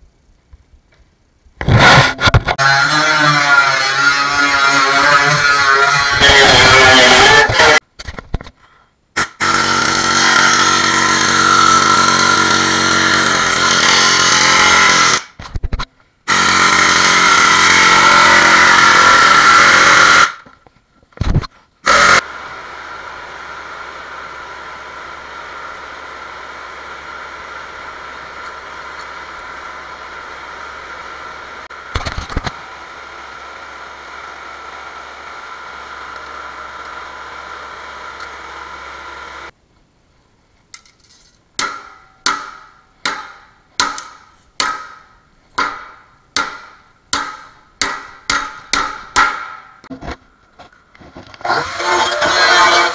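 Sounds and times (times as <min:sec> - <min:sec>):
mechanical running noise with hum: 0:22.0 - 0:39.6
air chisel hammering on steel: 0:41.6 - 0:49.8.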